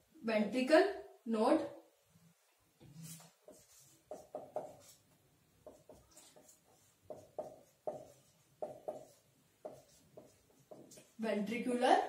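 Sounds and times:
marker pen writing on whiteboard: 2.8s - 11.2s.

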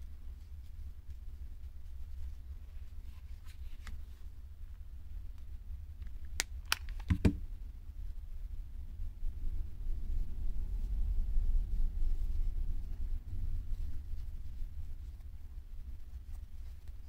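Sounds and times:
low steady hum: 0.0s - 17.0s
knock: 7.1s - 7.4s.

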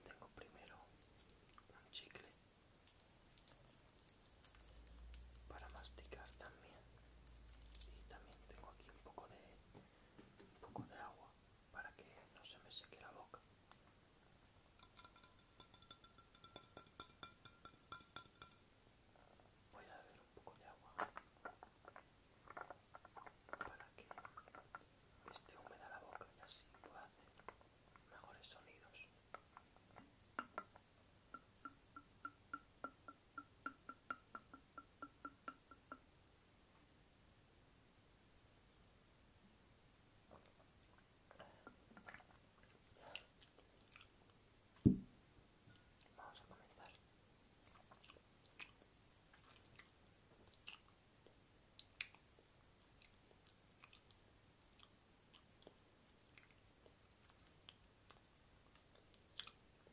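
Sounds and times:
wet mouth clicks and smacks: 51.8s - 52.2s.

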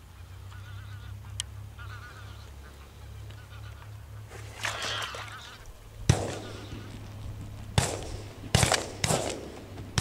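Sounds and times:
shotgun shots echoing: 6.1s - 6.8s, 7.8s - 10.0s.

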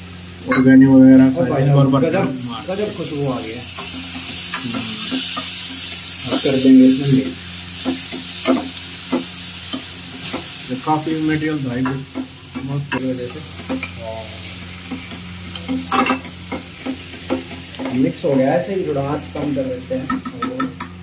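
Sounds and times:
masala sizzling in a pan: 0.0s - 21.0s
steel spoon scraping a pan: 3.8s - 10.6s.

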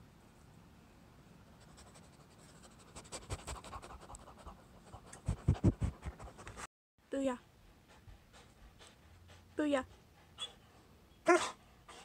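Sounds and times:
dog panting: 2.6s - 6.7s, 7.4s - 12.0s.

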